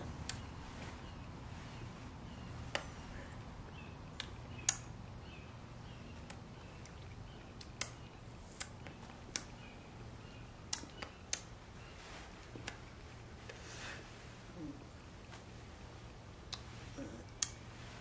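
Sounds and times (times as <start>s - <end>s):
faint low hum: 0.0s - 18.0s.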